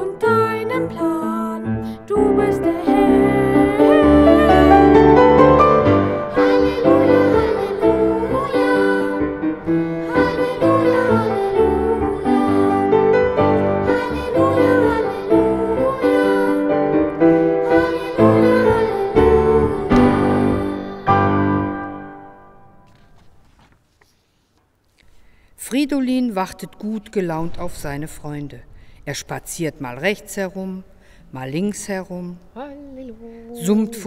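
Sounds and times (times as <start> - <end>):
christian song with piano: 0.0 - 23.4.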